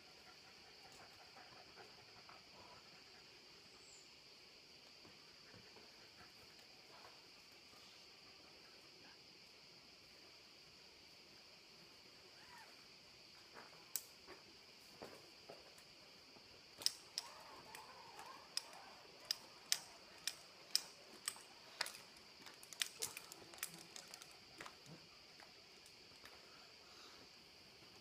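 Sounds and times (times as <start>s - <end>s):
steady high hiss: 0.0s - 28.0s
climbing gear clicks and taps on rock: 16.8s - 26.4s.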